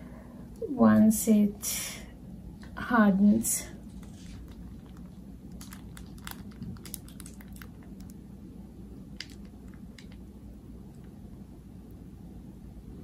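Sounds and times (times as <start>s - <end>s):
steady low hum: 0.0s - 13.0s
frosting squishes: 3.8s - 11.4s
small crinkly clicks: 4.0s - 8.2s, 9.2s - 10.2s.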